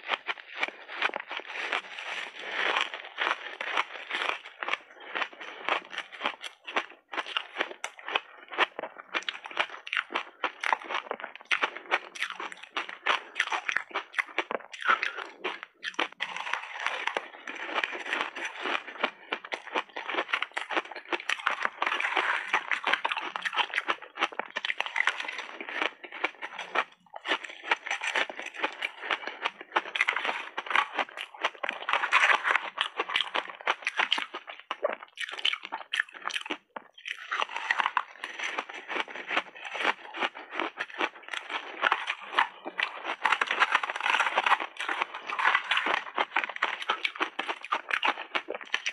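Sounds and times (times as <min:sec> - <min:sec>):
crunching frozen ice: 0:00.0 - 0:48.9.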